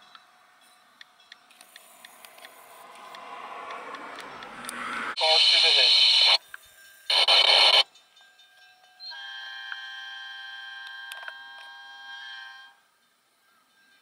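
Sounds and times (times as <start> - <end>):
two-way radio chatter: 5.2 - 6.4, 7.1 - 7.8
locomotive air horn chord: 9.1 - 12.8.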